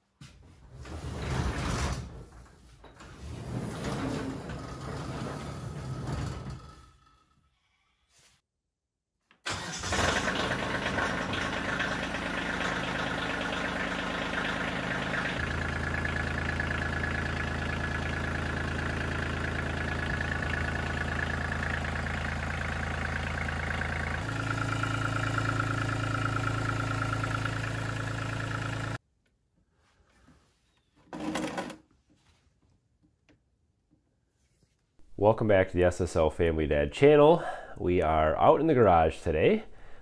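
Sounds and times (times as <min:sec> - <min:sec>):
tractor diesel engine idling: 0:09.5 - 0:29.0.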